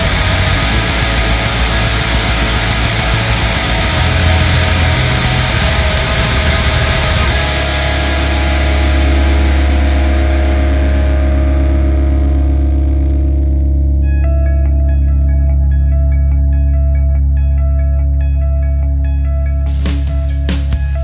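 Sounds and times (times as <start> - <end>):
drums: 0.0 - 12.9, 19.6 - 21.0
held low chord ringing: 0.0 - 19.8
distorted guitars: 0.0 - 21.0.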